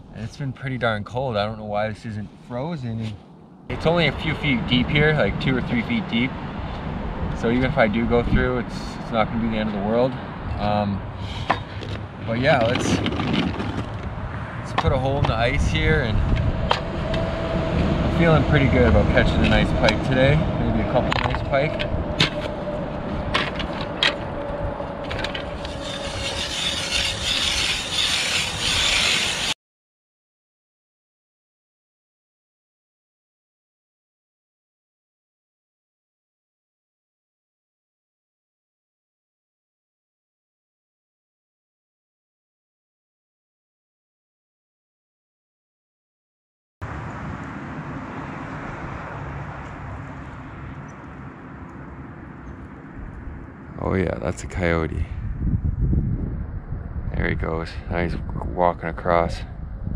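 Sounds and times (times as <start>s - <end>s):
low outdoor rumble: 0.0s - 29.6s, 46.8s - 59.9s
ice auger grinding into ice: 25.2s - 29.6s.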